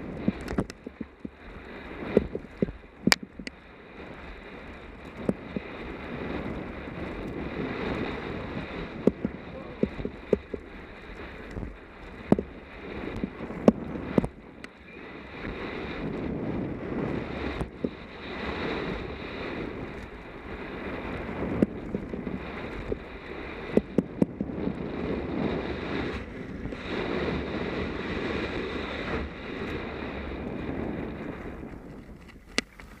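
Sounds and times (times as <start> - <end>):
bike clattering over bumps: 0.0 - 14.8
bike tyre noise: 0.0 - 33.0
wind rushing over microphone: 0.0 - 33.0.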